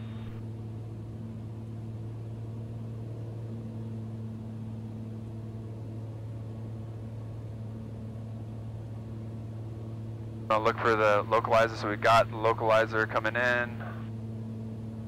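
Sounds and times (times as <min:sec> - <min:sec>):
air noise over airframe: 0:00.0 - 0:00.8
airplane engine drone in cabin: 0:00.0 - 0:15.0.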